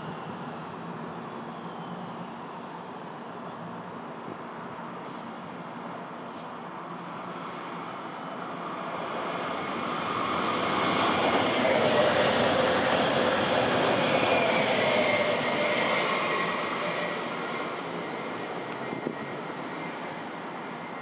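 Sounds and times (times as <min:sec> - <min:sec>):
train wheels on rails: 0:07.8 - 0:21.0.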